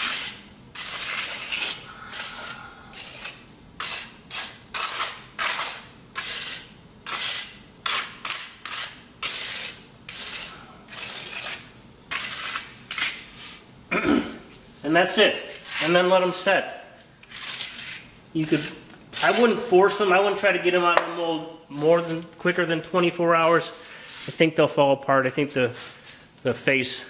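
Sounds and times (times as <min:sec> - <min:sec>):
putty knife scraping wet concrete: 0:00.0 - 0:13.6, 0:15.2 - 0:16.5, 0:17.2 - 0:19.7.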